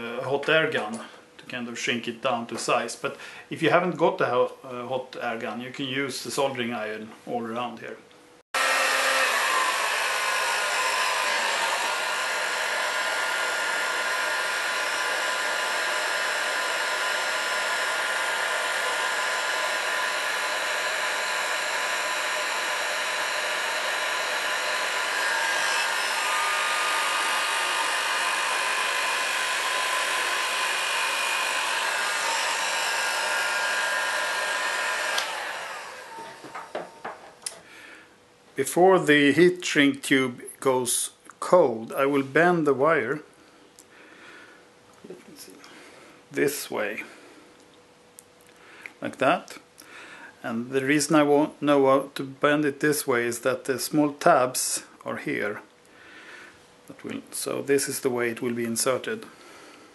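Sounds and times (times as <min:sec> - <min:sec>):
hot air gun blowing: 0:08.6 - 0:37.6
fan whine: 0:08.6 - 0:38.2.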